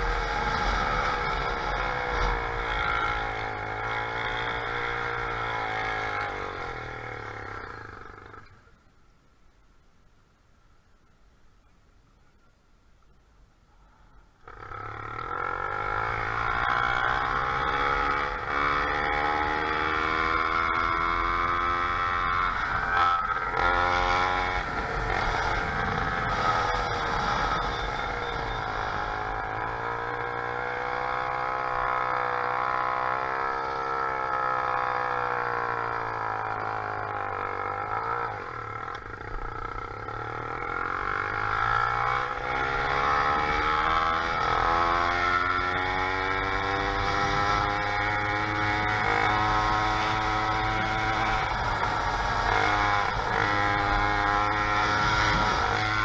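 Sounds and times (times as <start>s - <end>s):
small bicycle engine running: 14.6s - 56.0s.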